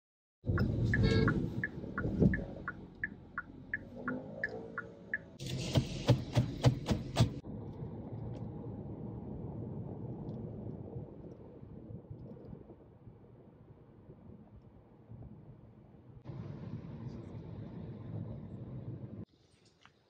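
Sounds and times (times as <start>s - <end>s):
even ticking: 0.5s - 5.4s
car horn: 0.6s - 2.6s.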